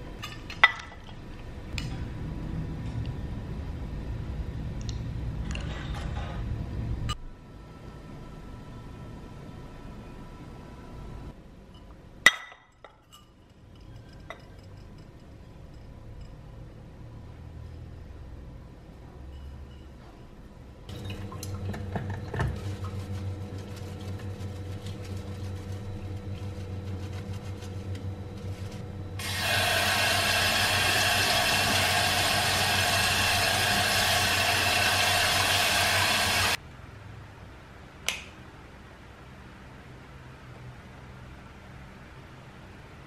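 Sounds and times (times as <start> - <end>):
tap water rushing into a sink: 29.2 - 36.6.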